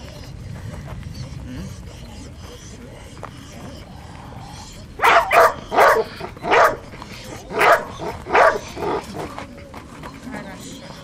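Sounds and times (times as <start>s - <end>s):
dog barking: 5.0s - 9.3s.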